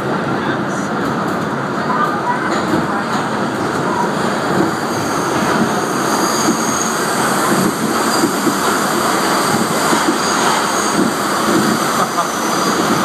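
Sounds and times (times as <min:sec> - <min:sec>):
train wheels rumbling on rails: 0:00.0 - 0:13.0
high wheel squeal: 0:04.8 - 0:08.5, 0:09.1 - 0:11.1.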